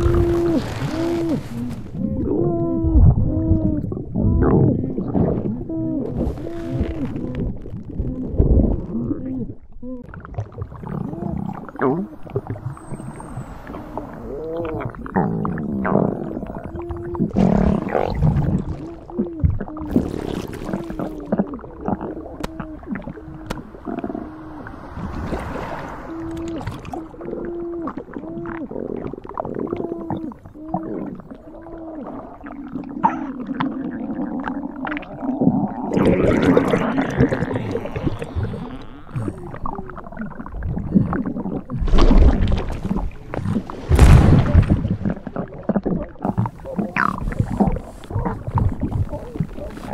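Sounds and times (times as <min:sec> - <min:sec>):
stomach gurgling and groaning: 0:00.0 - 0:49.9
heavy deep rumbles: 0:10.5 - 0:18.8, 0:20.8 - 0:28.2
rushing slosh: 0:19.9 - 0:27.4, 0:41.8 - 0:45.4.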